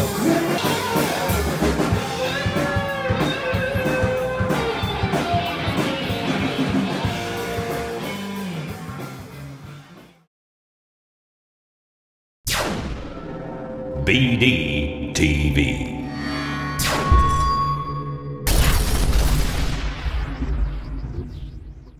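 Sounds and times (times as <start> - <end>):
electric guitar blues lead: 0.0 - 10.0
drum kit: 0.0 - 10.1.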